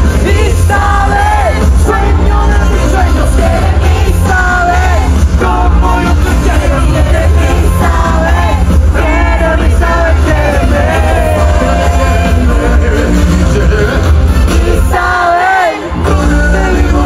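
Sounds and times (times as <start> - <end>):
loud band with heavy bass: 0.0 - 17.0
person singing: 0.0 - 17.0
crowd yelling: 0.1 - 12.6.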